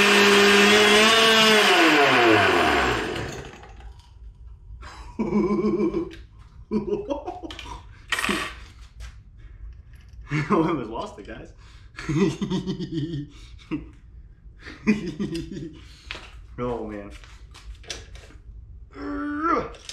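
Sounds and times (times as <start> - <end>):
small two-stroke engine winding down: 0.0 - 3.8.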